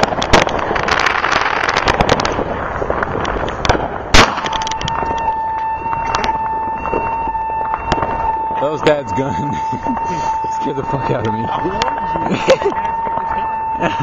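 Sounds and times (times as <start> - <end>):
fireworks popping and crackling: 0.0 - 14.0
loud gunshot: 3.7 - 5.0
vehicle alarm tone: 4.4 - 14.0.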